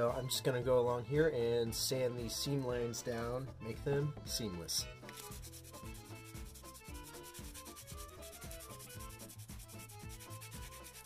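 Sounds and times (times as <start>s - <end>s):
nail file rasping on resin: 5.2s - 11.0s.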